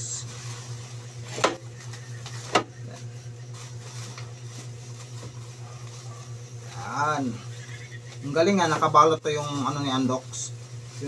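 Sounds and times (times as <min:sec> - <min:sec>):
steady low hum: 0:00.0 - 0:11.0
plastic bag crinkling: 0:00.2 - 0:06.8.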